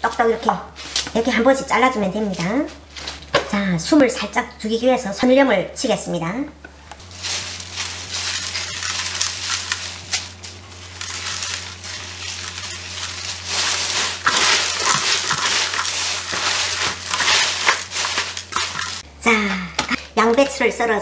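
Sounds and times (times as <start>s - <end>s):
hands rustling leafy greens: 7.0s - 19.0s
salt scattering on leaves: 7.1s - 19.0s.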